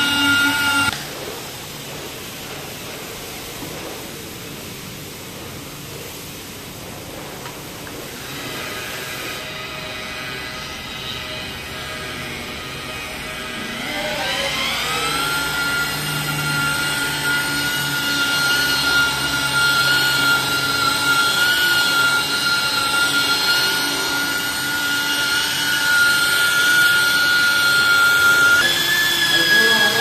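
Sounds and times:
car polisher motor whine: 0:00.0 - 0:01.0, 0:08.1 - 0:30.0.

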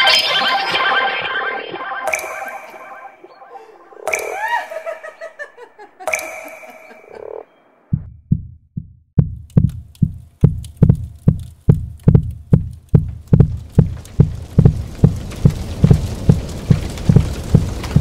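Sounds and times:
ringing synthesized tone: 0:00.0 - 0:04.3
deep electronic thumps: 0:07.9 - 0:18.0.

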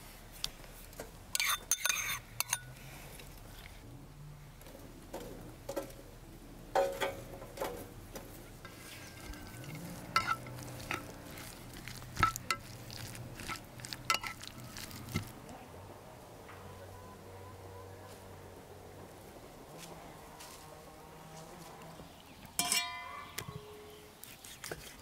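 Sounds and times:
spoon clinking bowl: 0:01.4 - 0:02.6, 0:09.0 - 0:11.5, 0:13.4 - 0:14.5
spoon stirring salad: 0:01.4 - 0:02.7, 0:08.6 - 0:15.4.

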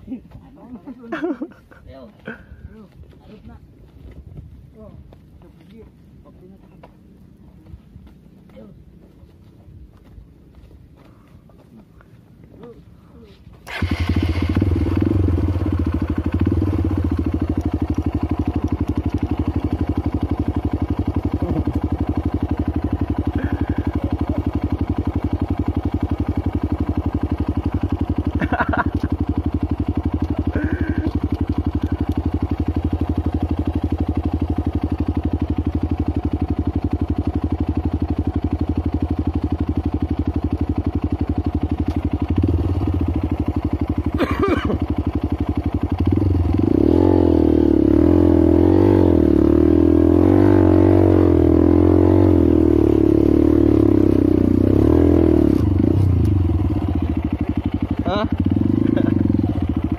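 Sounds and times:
motorcycle engine idling: 0:00.0 - 0:59.9
voices: 0:22.8 - 0:25.2.

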